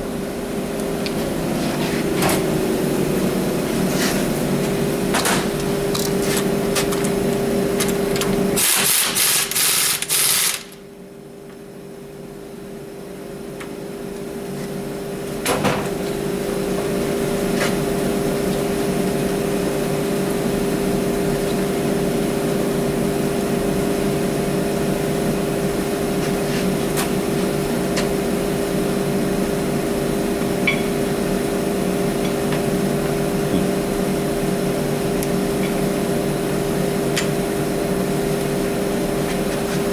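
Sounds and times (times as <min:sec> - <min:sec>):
steady machine hum: 0:00.0 - 0:39.9.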